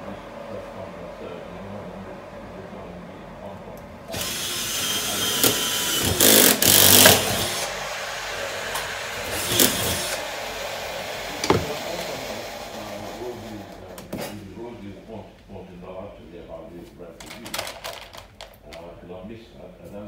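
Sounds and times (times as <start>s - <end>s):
cordless drill drilling: 4.1s - 13.9s.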